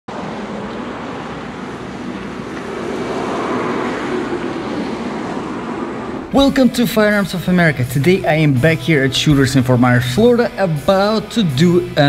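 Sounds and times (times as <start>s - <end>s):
wind on microphone: 0.1s - 6.4s
traffic rush: 0.1s - 12.0s
vehicle passing: 0.1s - 12.0s.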